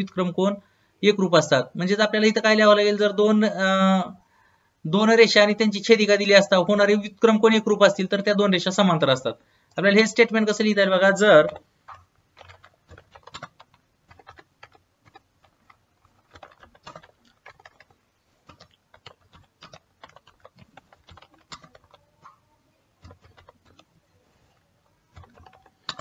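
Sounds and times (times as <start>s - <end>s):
keyboard typing: 9.9s - 26.0s.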